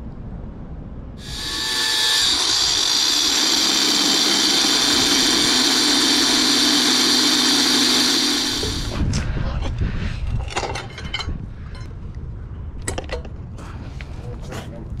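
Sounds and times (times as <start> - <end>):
angle grinder cutting steel: 1.2 - 9.0.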